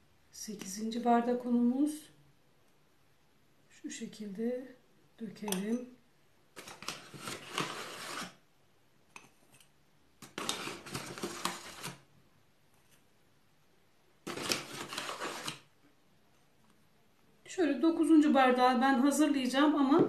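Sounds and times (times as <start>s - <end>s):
flour sifting through sieve: 6.6s - 8.4s, 10.2s - 12.0s, 14.2s - 15.7s.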